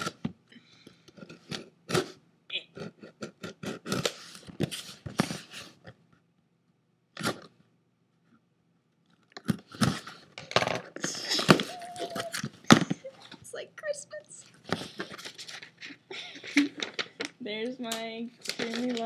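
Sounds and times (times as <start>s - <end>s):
tape tearing and cardboard rustling: 3.4s - 5.7s, 10.9s - 13.0s, 18.4s - 19.0s.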